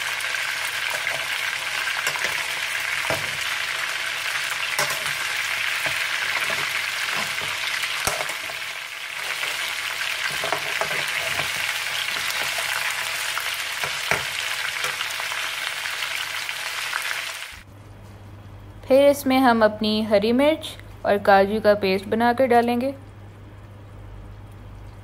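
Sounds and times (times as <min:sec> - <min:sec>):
chicken sizzling in hot oil: 0:00.0 - 0:17.6
spatula scraping pan: 0:04.7 - 0:08.6, 0:09.2 - 0:12.8.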